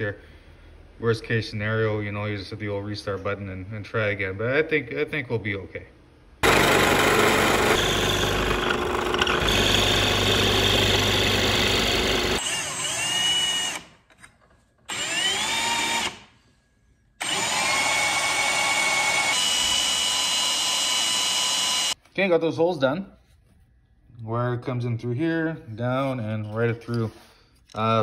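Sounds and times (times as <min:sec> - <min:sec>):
drill press boring into wood: 0:06.4 - 0:13.9, 0:14.9 - 0:16.2, 0:17.2 - 0:22.0
cordless drill whine: 0:06.4 - 0:14.0, 0:14.9 - 0:16.2, 0:17.2 - 0:22.0.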